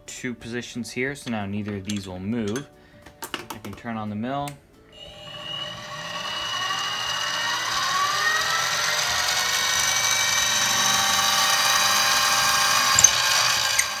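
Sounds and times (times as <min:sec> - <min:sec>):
mill spindle whine: 0:05.0 - 0:14.0.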